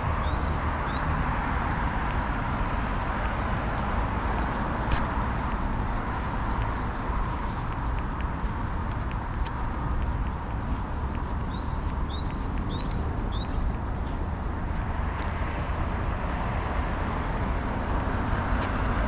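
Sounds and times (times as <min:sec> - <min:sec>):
bird chirping: 0:00.0 - 0:01.2, 0:11.4 - 0:13.7
distant road traffic hum: 0:00.0 - 0:19.0.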